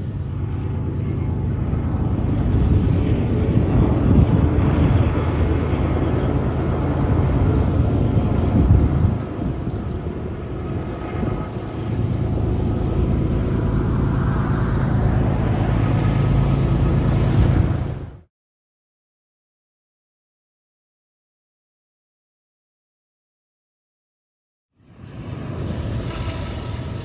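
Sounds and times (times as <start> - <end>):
diesel locomotive engine drone: 0.0 - 18.3, 24.7 - 27.0.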